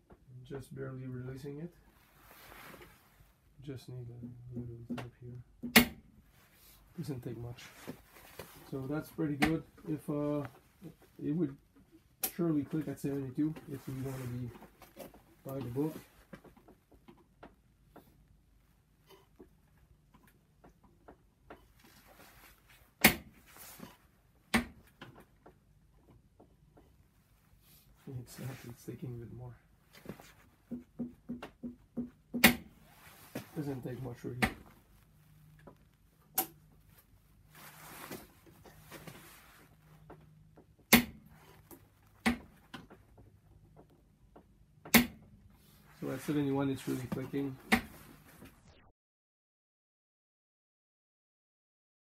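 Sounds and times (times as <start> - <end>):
soft rustling: 1.0 - 4.3, 6.2 - 20.6, 21.5 - 31.0, 32.7 - 44.0, 45.5 - 48.6.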